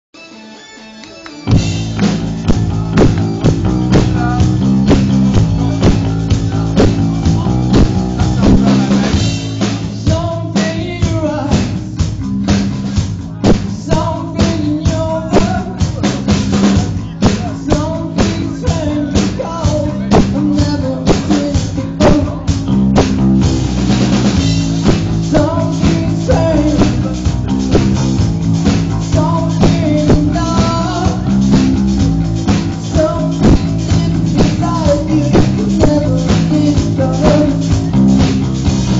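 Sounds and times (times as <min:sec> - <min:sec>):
rock band playing: 0:00.2 - 0:38.9
drum kit beat: 0:01.0 - 0:38.9
bass guitar: 0:01.4 - 0:38.9.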